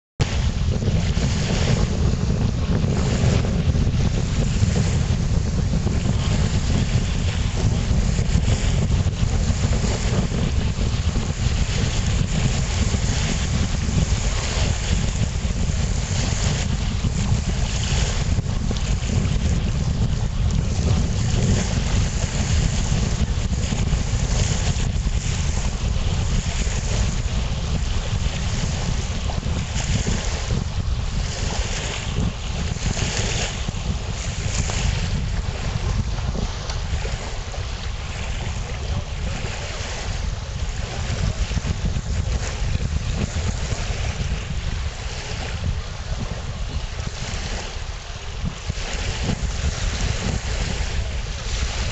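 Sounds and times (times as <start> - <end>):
choppy lake water: 0.2 - 51.9
gusty wind buffeting microphone: 0.2 - 51.9
small waves breaking: 0.2 - 51.9.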